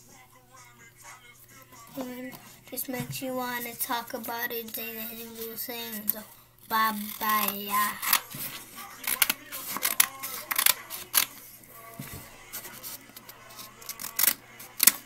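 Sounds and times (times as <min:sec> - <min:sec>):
faint background music: 0:00.0 - 0:15.0
scissors snipping paper: 0:04.6 - 0:11.5, 0:12.5 - 0:15.0.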